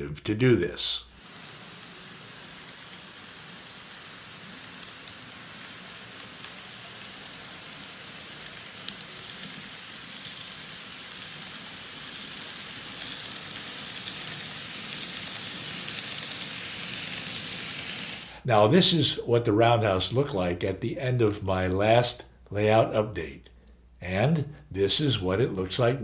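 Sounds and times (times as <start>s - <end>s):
model train wheels and motor hiss: 1.0s - 20.5s
wheels clicking over rail joints: 1.8s - 18.3s.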